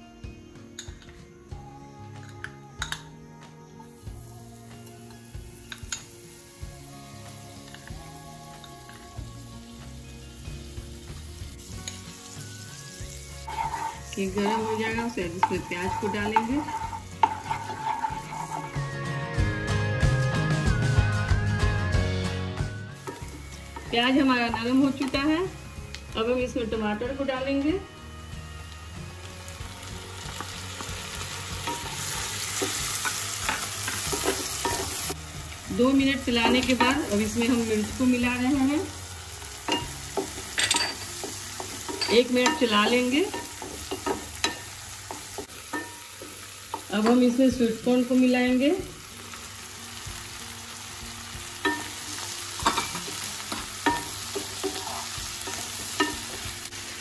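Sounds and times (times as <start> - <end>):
onions sizzling in butter: 3.8 - 20.1, 22.4 - 57.0
spatula scraping pan: 13.4 - 19.0, 52.6 - 56.5
spatula clinking against pan: 15.3 - 18.8, 39.7 - 47.2, 51.6 - 56.5.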